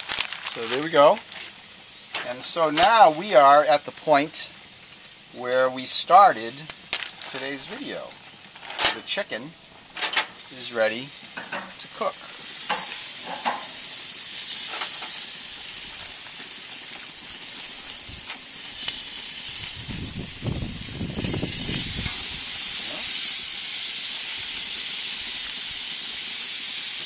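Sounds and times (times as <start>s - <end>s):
plastic bag rustling: 0.0s - 3.3s, 6.8s - 10.5s
chicken sizzling on a grill: 0.0s - 27.0s.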